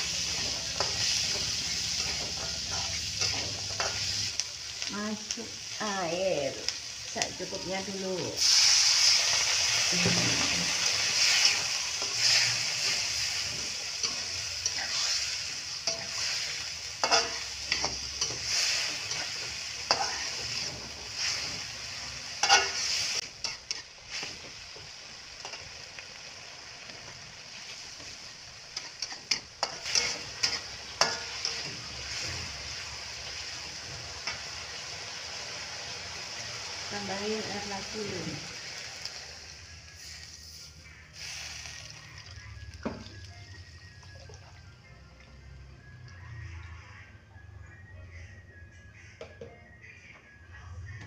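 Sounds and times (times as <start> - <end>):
metal spatula scraping wok: 0.0 - 4.3, 8.4 - 24.4, 28.8 - 32.8
wok sizzling loudly: 0.0 - 44.8.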